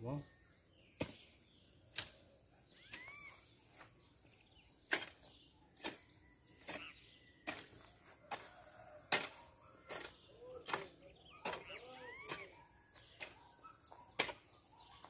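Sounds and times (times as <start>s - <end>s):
faint bird chirps: 0.0s - 15.0s
hoe chopping into soil: 1.0s - 2.3s, 4.8s - 13.5s, 14.1s - 14.6s.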